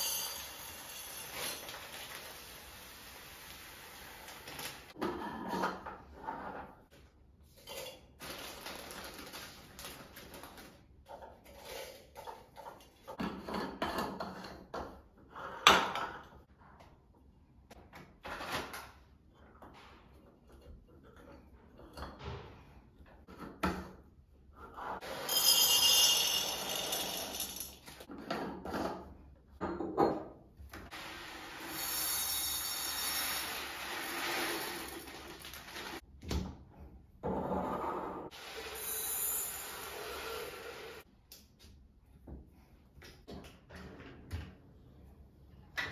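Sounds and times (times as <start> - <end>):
plastic packets crinkling: 8.2 - 10.8
rice pouring into glass jar: 31.6 - 36.0.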